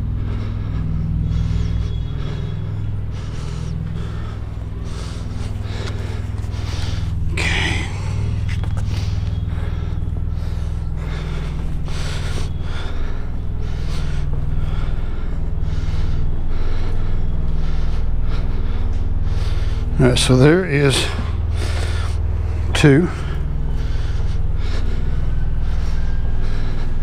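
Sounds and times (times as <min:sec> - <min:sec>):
hard breath of effort: 0:00.0 - 0:27.0
truck engine idling: 0:00.0 - 0:27.0
footsteps and scuffing: 0:05.0 - 0:07.2, 0:08.0 - 0:09.5.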